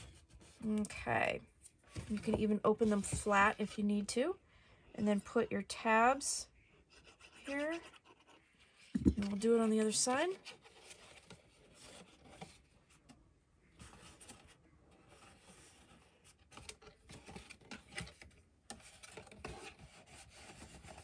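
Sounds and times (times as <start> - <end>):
cardstock rustling and rubbing: 7.0 - 12.8, 13.8 - 21.0.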